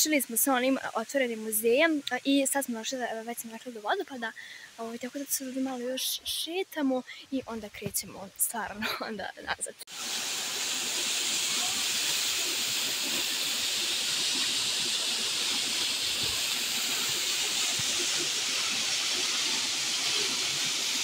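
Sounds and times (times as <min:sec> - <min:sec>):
waterfall splashing into pool: 0:09.9 - 0:21.0.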